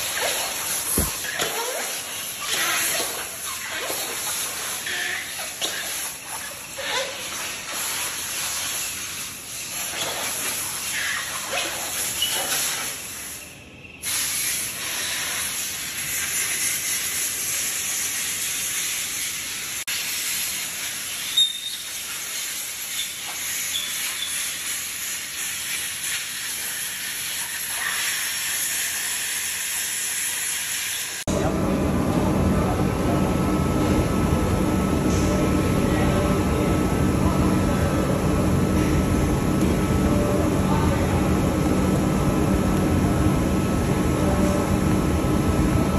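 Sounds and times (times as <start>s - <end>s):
workshop machine hiss: 0.0s - 45.9s.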